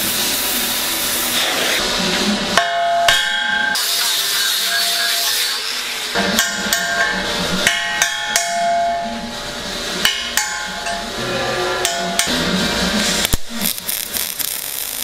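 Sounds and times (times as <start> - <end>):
hammer striking metal: 2.6 - 5.3, 6.2 - 9.3, 10.0 - 12.4.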